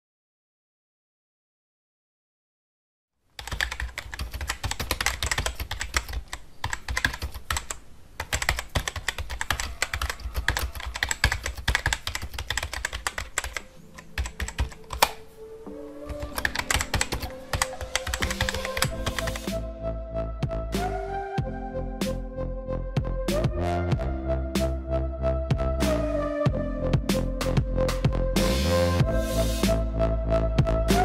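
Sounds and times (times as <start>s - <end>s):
keyboard typing clicks: 3.4s - 15.2s, 16.0s - 19.5s.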